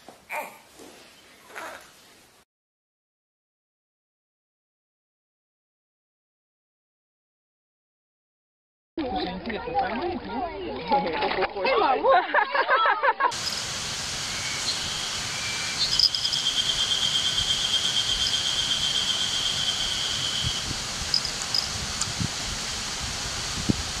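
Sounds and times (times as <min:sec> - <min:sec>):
insect trilling: 0:13.3 - 0:13.7, 0:14.3 - 0:21.8
steady hiss: 0:13.3 - 0:24.0.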